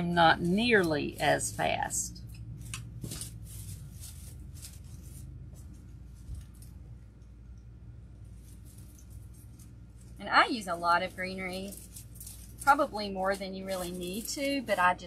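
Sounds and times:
handling noise: 0.5s - 7.0s.

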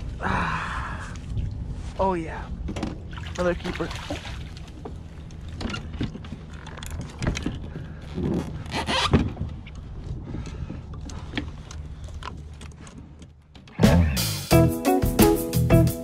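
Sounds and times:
clicks and knocks of handling gear: 4.7s - 13.8s
music: 13.8s - 16.0s.

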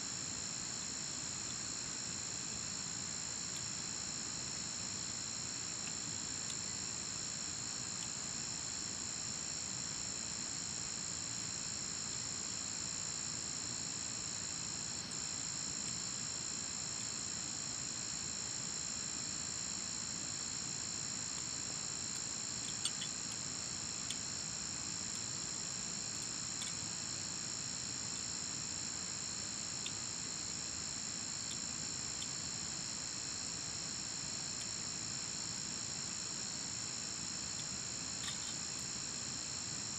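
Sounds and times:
insects trilling: 13.7s - 39.9s.

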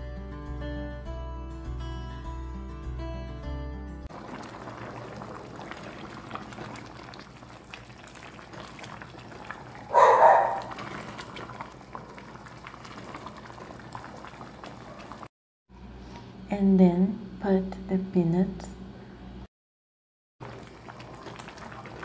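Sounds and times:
pan simmering and bubbling: 4.1s - 15.3s, 20.4s - 22.0s.

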